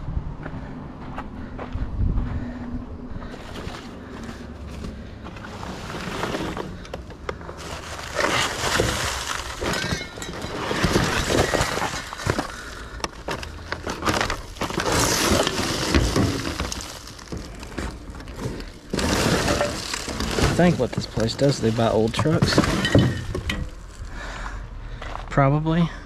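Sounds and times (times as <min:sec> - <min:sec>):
debris clattering in dumpster: 0:03.5 - 0:24.2.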